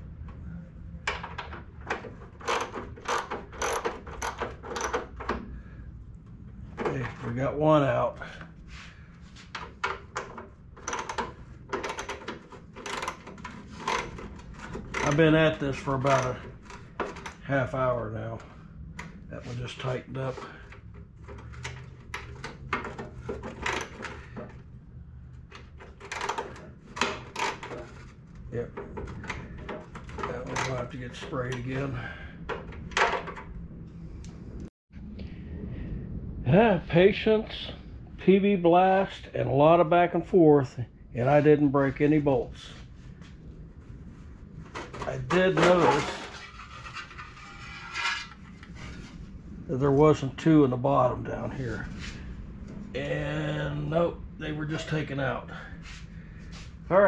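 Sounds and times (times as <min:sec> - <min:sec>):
steady low hum: 0:00.0 - 0:57.0
wrench clicking and scraping: 0:02.0 - 0:05.2, 0:09.9 - 0:17.4.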